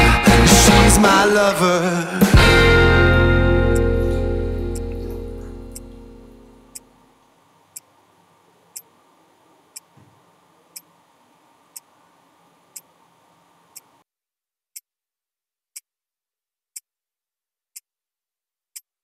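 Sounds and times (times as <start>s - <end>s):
low room tone: 2.4s - 14.0s
wristwatch ticking: 8.7s - 8.9s, 11.7s - 11.9s.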